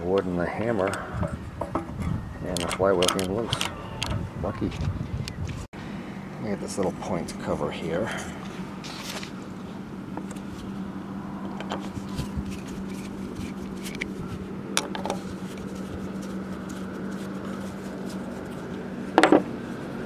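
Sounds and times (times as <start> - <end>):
steady low hum: 0.0 - 20.0
screwdriver clicks and scrapes on metal: 2.5 - 4.2.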